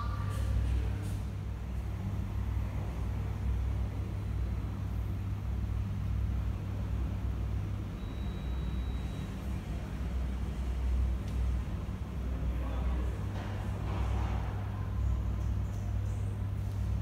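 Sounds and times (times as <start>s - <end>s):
faint high tone: 0.0s - 0.5s.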